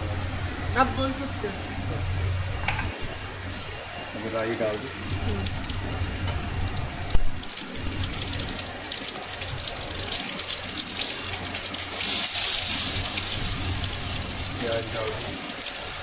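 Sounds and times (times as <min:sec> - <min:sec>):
hot oil sizzling and crackling: 0:00.0 - 0:16.0.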